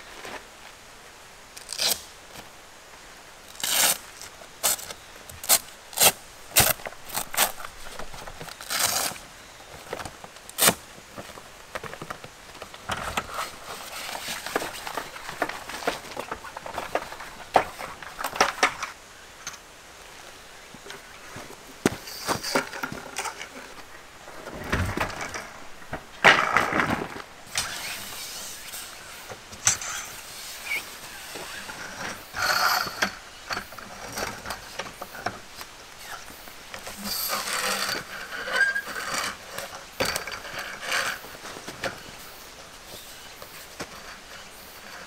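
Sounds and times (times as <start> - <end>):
metal legs clacking and sliding: 24.4 - 35.4, 36.8 - 45.0.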